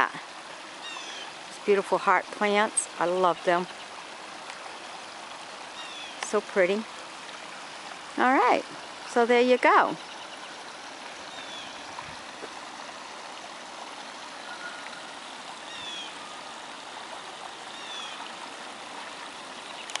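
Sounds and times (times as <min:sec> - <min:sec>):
waterfall trickling into a pool: 0:00.0 - 0:20.0
faint bird chirp: 0:09.9 - 0:11.9, 0:14.4 - 0:16.5.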